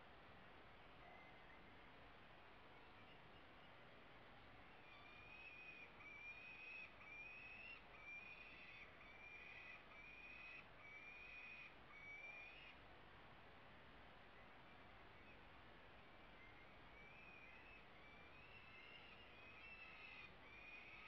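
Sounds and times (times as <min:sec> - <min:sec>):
falcon chicks begging calls: 0:04.8 - 0:12.8, 0:16.4 - 0:21.0.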